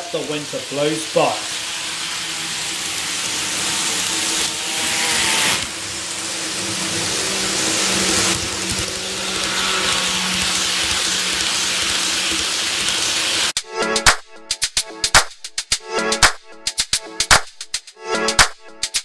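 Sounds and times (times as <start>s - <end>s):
model train wheels hissing on rail: 0.0s - 13.6s
low electric motor hum: 0.2s - 13.5s.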